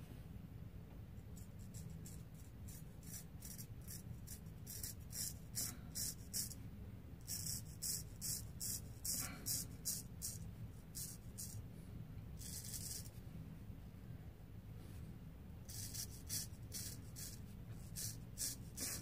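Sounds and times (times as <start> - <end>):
razor scraping stubble: 1.7 - 6.6, 12.4 - 13.1, 15.7 - 19.0.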